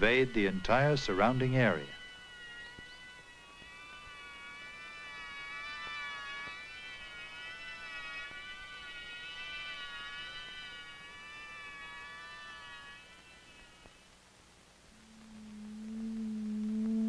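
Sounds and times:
sustained high music chord: 14.9s - 17.0s.

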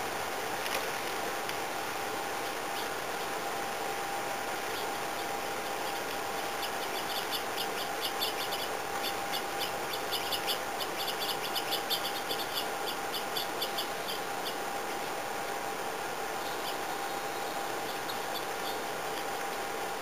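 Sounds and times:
steady hiss: 0.0s - 20.0s
songbirds chirping: 1.5s - 20.0s.

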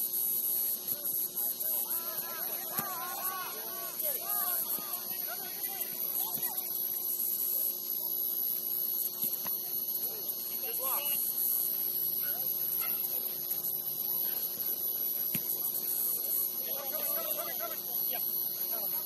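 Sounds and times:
high-pitched hiss: 0.0s - 19.0s
distant shouts: 0.9s - 6.8s, 16.4s - 19.0s.

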